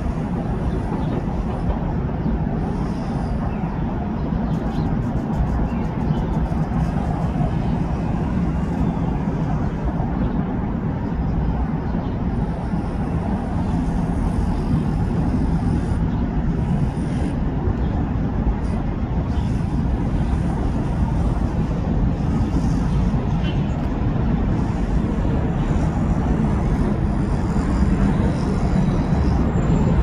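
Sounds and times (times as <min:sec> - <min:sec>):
low rumble of city traffic: 0:00.0 - 0:30.0.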